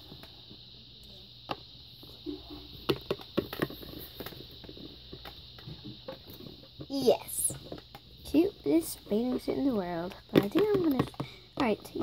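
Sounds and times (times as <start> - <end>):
steady background hiss: 0.0 - 12.0
plastic figurines tapping on a table: 10.2 - 11.8.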